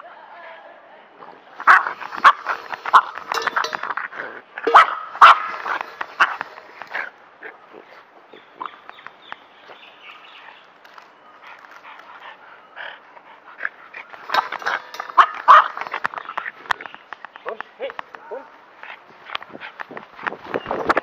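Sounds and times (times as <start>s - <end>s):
dogs barking: 1.6s - 3.9s, 4.6s - 7.6s, 13.6s - 16.2s.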